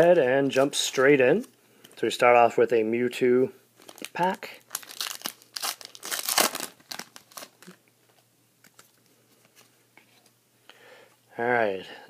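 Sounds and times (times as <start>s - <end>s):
foil wrapper crinkling: 3.8s - 7.8s.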